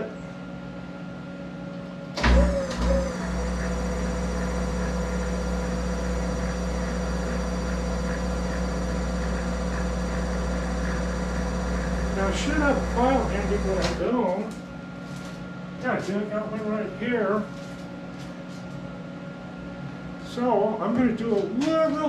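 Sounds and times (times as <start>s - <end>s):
lathe humming and whining: 0.0s - 18.3s
lathe starting with a thump: 2.2s - 14.0s.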